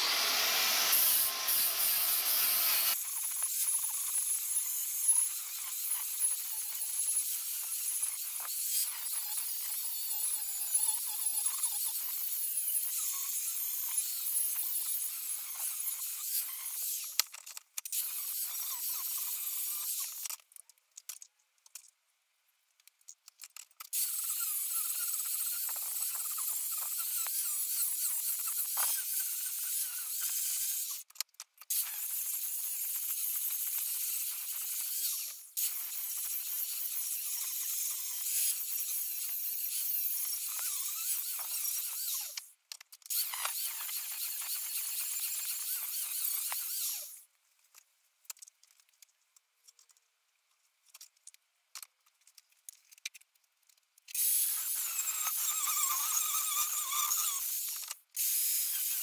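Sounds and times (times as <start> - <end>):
angle grinder grinding metal: 0.0 - 20.3, 24.0 - 31.0, 31.7 - 42.5, 43.1 - 47.2, 54.1 - 59.0.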